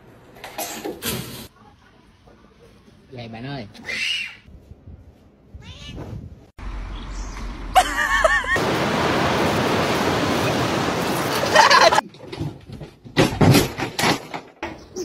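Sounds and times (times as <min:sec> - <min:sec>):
surf and wind rushing: 0:08.4 - 0:12.0.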